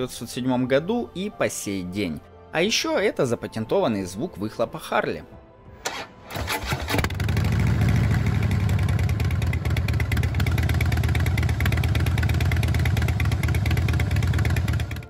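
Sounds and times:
motorcycle engine running: 6.0 - 15.0.

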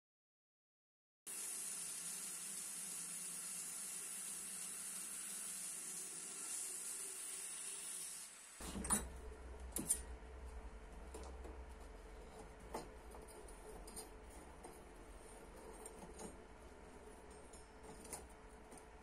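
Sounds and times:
machine high-pitched hiss: 1.3 - 8.6
low hum: 8.6 - 19.0.

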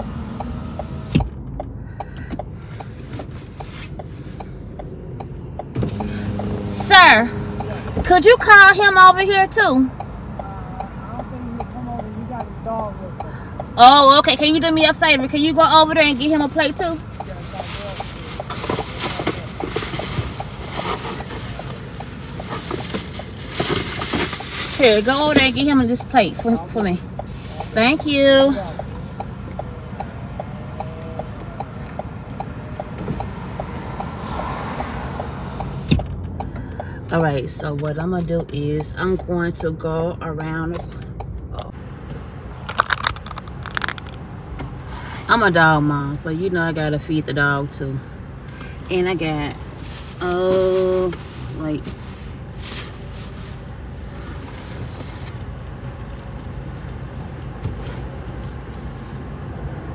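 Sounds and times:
car engine idling: 0.0 - 39.7, 40.5 - 59.2
car indicator clicking: 0.3 - 6.5.

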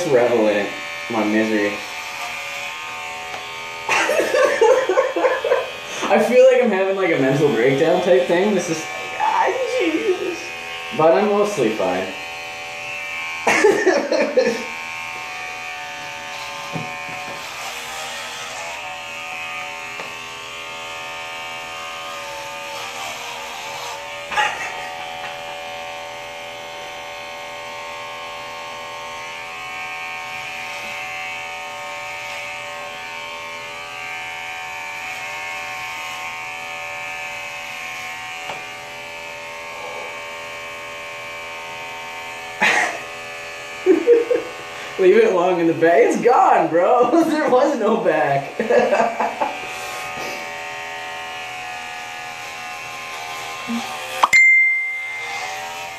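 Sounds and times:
electric hair clippers buzzing: 0.0 - 55.9.

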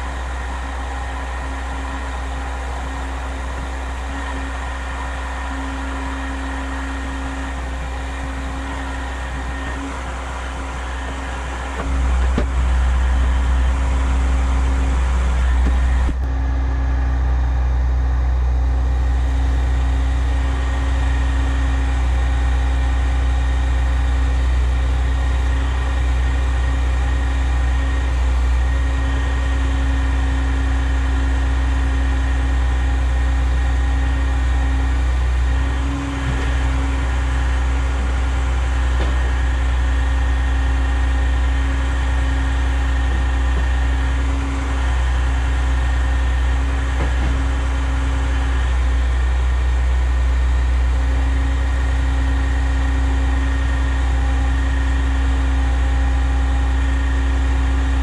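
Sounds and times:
truck diesel engine droning: 0.0 - 58.0.

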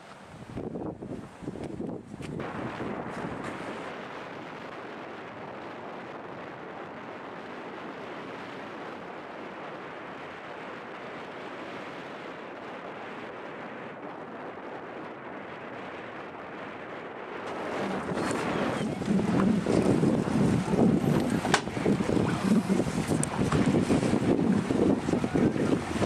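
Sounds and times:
surf: 0.0 - 26.0
wind rushing: 15.4 - 26.0.

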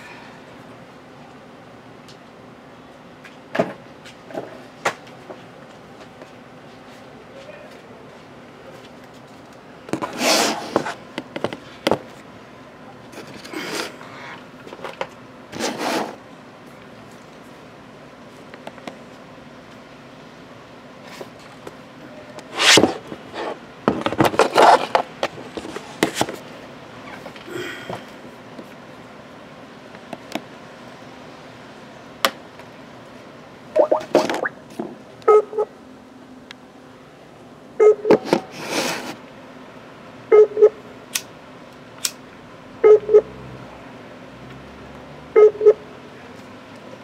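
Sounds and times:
scrape on tabletop: 10.0 - 11.0, 15.6 - 16.2, 22.5 - 23.6, 38.5 - 39.2
laptop call ringing tone: 42.8 - 43.3.

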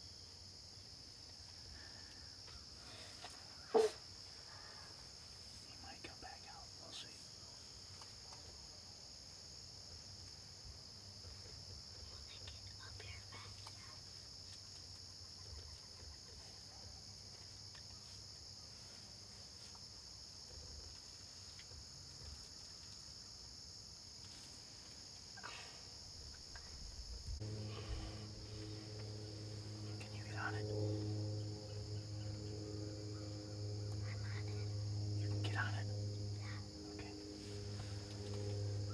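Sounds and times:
insects chirring: 0.0 - 38.9
low background rumble: 26.0 - 38.9.

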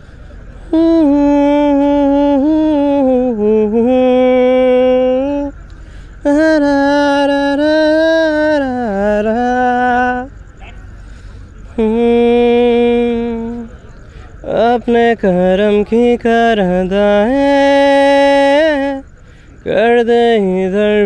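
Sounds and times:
person singing long notes: 0.7 - 5.5, 6.2 - 10.3, 11.8 - 13.8.

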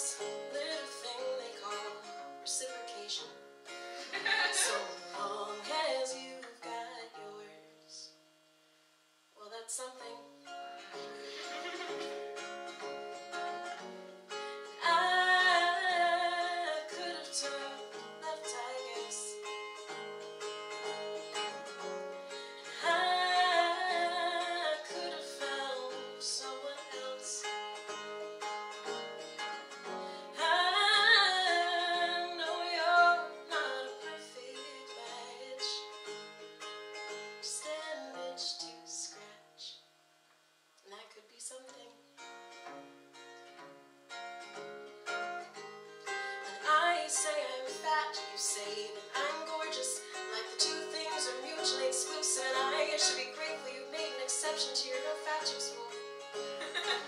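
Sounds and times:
woman singing: 0.0 - 3.4, 4.0 - 8.1, 9.4 - 10.6, 14.6 - 19.5, 22.5 - 27.6, 30.2 - 36.0, 37.4 - 39.8, 40.9 - 42.0, 46.6 - 57.0
acoustic guitar playing: 0.0 - 8.1, 10.0 - 40.4, 42.0 - 57.0.

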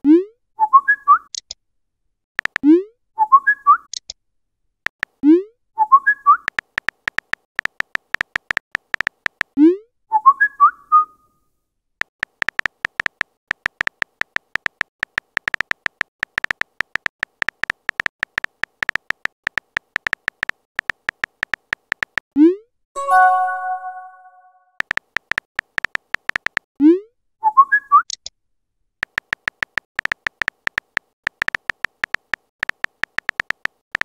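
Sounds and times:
whistle-like chirp: 0.6 - 1.3, 3.2 - 3.9, 5.8 - 6.5, 10.1 - 11.3, 27.4 - 28.1
phone keyboard clicks: 2.4 - 2.6, 6.4 - 9.6, 12.1 - 22.2, 24.8 - 26.7, 29.0 - 34.0.

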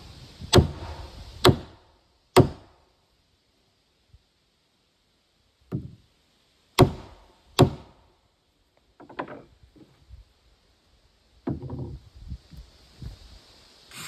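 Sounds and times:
light knocks and clunks: 5.7 - 6.0, 8.8 - 10.1, 11.4 - 12.0.

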